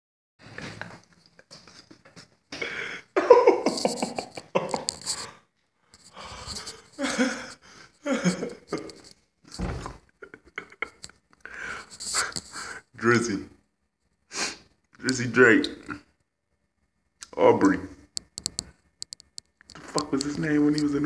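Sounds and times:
man laughing loudly: 0:03.1 - 0:05.2, 0:07.0 - 0:09.0, 0:10.2 - 0:11.0.

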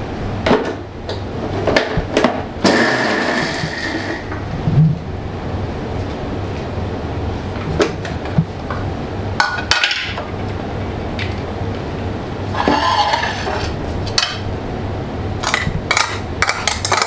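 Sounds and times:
steady low hum: 0:00.0 - 0:17.0
kitchen utensils clinking: 0:12.6 - 0:14.4.

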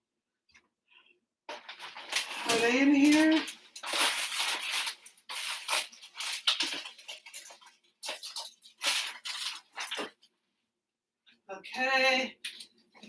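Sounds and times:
jars and packets rummaged in cupboard: 0:01.5 - 0:10.4, 0:12.3 - 0:13.0.

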